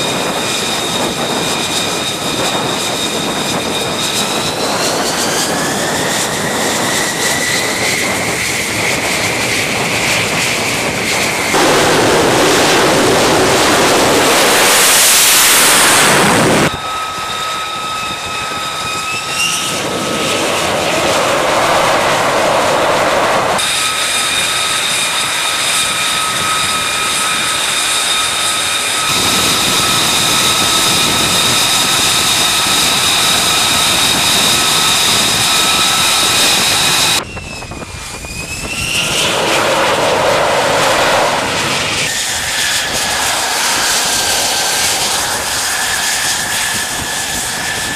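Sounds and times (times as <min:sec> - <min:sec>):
high turbine whine: 0:00.0 - 0:47.9
jet engine rushing roar: 0:00.0 - 0:47.9
jet taxiing whistling whine: 0:00.0 - 0:47.9.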